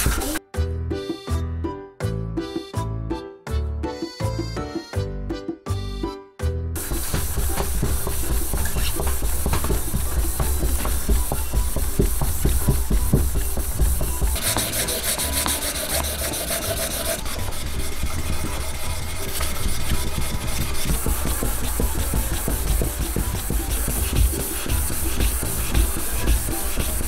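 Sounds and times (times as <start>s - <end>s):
sandpaper rasping on wood: 6.8s - 27.0s.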